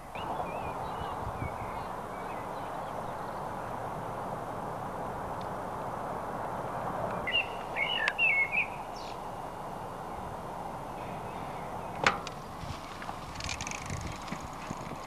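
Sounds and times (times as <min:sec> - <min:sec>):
steady background noise: 0:00.0 - 0:15.0
bird chirping warbling notes: 0:07.2 - 0:09.1.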